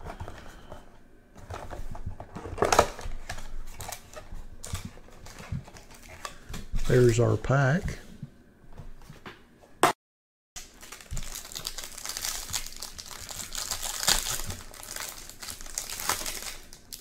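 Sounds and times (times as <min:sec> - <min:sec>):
plastic wrapper crinkling and tearing: 0:10.6 - 0:17.0.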